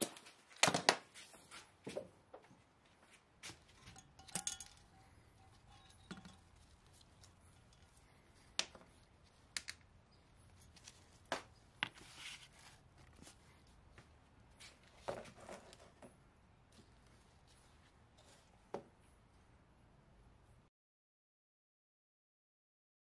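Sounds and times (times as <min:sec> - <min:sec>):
metallic clicks and clinks: 0:03.8 - 0:08.0.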